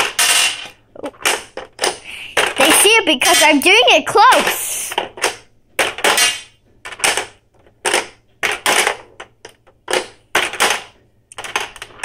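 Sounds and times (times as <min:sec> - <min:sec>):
plastic toy clacks: 0:00.0 - 0:12.0.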